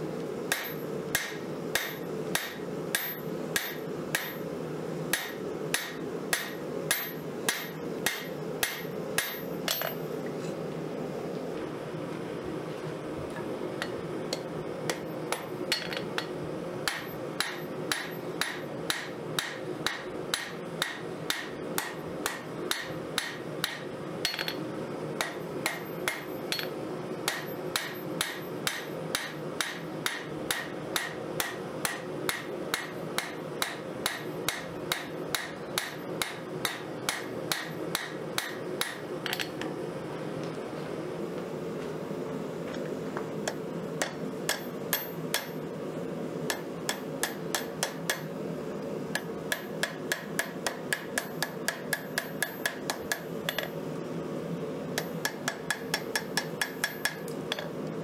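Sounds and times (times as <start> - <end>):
constant hum: 0.0 - 58.0
hammer striking metal on anvil: 0.5 - 4.4, 5.1 - 10.0, 13.8 - 16.3, 16.9 - 24.6, 25.2 - 26.7, 27.3 - 39.5, 43.5 - 45.6, 46.5 - 48.3, 49.2 - 53.7, 55.0 - 57.7.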